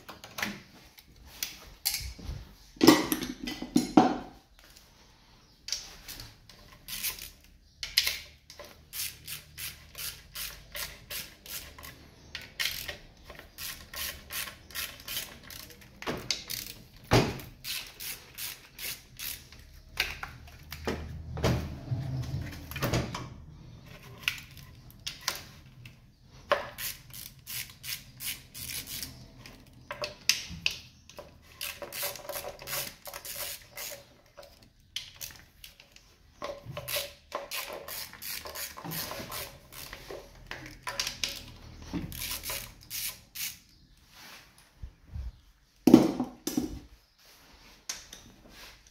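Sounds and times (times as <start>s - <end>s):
parts knocking and rattling: 1.8s - 4.4s, 10.6s - 43.0s, 45.8s - 46.9s
ratchet wrench clicking: 6.8s - 16.8s, 17.6s - 19.6s, 26.7s - 29.7s, 31.6s - 34.0s, 36.8s - 40.0s, 42.1s - 43.7s.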